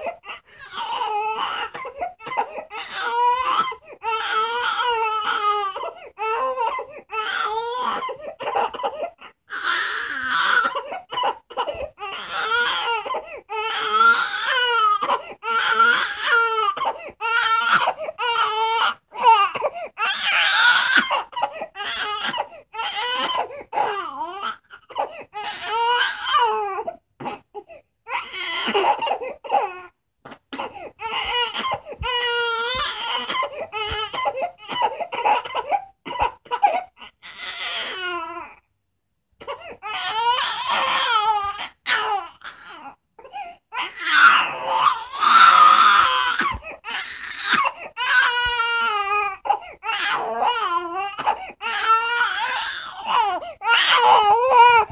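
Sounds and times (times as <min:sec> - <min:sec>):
infant crying: 0:00.0 - 0:38.7, 0:39.4 - 0:54.9.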